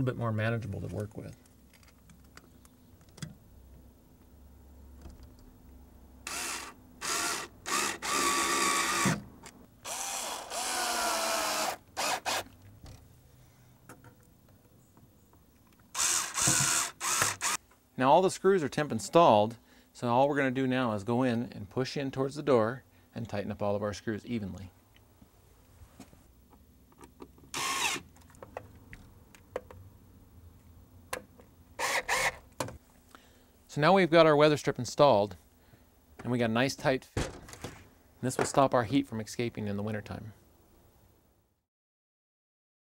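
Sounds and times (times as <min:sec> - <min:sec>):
power drill driving screws: 0:06.3 - 0:09.2, 0:09.8 - 0:12.5, 0:15.9 - 0:17.6, 0:27.5 - 0:28.0, 0:31.8 - 0:32.4.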